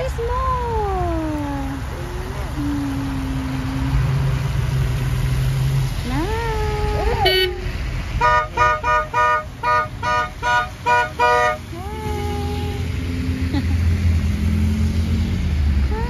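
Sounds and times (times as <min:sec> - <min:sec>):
cars passing on wet road: 0:00.0 - 0:16.0
car horn short beeps: 0:07.2 - 0:07.6, 0:08.2 - 0:11.6.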